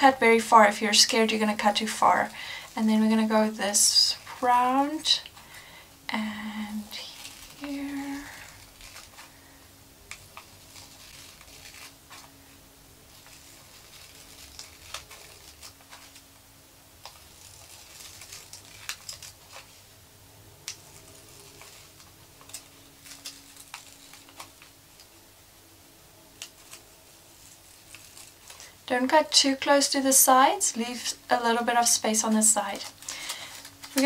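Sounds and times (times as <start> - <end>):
paper rustling: 0.4 - 16.4, 17.0 - 19.9, 20.6 - 25.1, 26.4 - 29.6, 30.8 - 34.0
scissors snipping paper: 10.0 - 12.3, 13.1 - 16.3, 17.0 - 19.7, 20.6 - 24.7, 26.4 - 28.8, 31.9 - 34.0.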